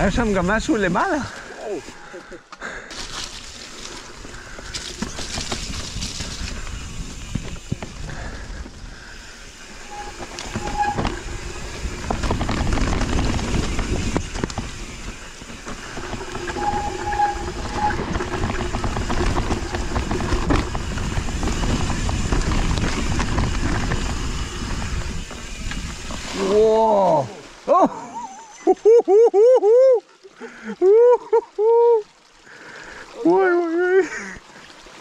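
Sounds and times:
bike tyre rumble on dirt: 0:02.8 - 0:27.3
bike rattling and clattering: 0:02.9 - 0:26.6
disc brakes squealing: 0:09.5 - 0:12.8, 0:13.5 - 0:21.0.

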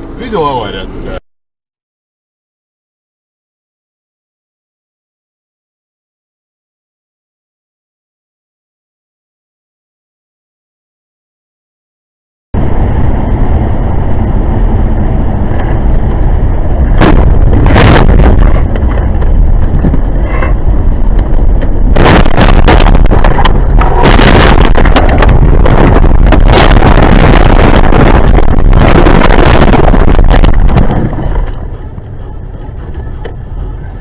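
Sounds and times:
car road and engine noise: 0:00.0 - 0:01.2, 0:12.6 - 0:34.0.

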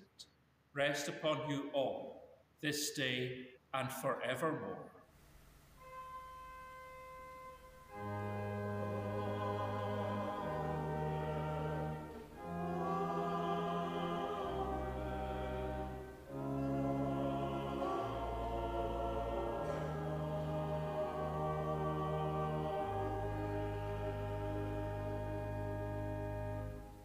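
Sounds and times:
organ chords: 0:05.2 - 0:27.0
choir singing: 0:07.5 - 0:27.0.

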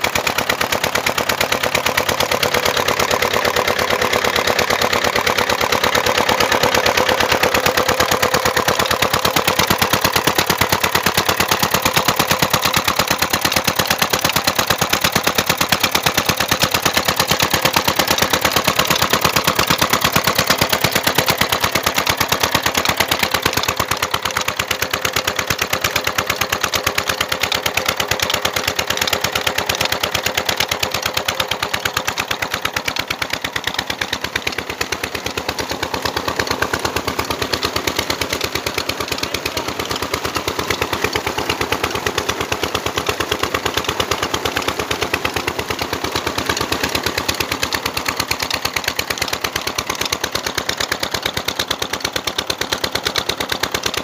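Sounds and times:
diesel engine knocking: 0:00.0 - 0:54.0
water rushing from pipe: 0:00.0 - 0:54.0.

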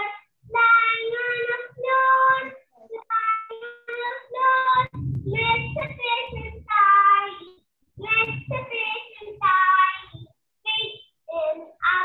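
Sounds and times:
child singing over video call: 0:00.0 - 0:12.0.

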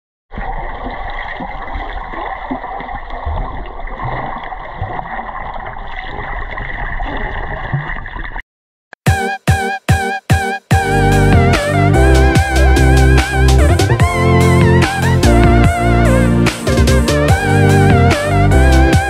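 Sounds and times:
water splashing and gurgling: 0:00.3 - 0:08.4.

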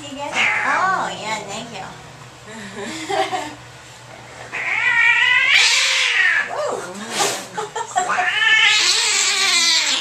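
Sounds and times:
cat growling: 0:00.3 - 0:01.1, 0:04.5 - 0:06.6, 0:08.0 - 0:10.0
cat hissing: 0:00.4 - 0:00.8, 0:04.5 - 0:06.5, 0:08.1 - 0:10.0
cat yowling: 0:00.4 - 0:00.9, 0:04.5 - 0:06.6, 0:08.1 - 0:10.0.

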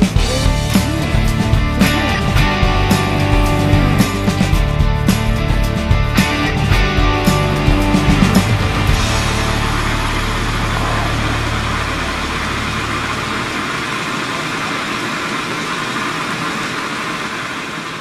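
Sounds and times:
geyser rushing hiss: 0:07.4 - 0:18.0.

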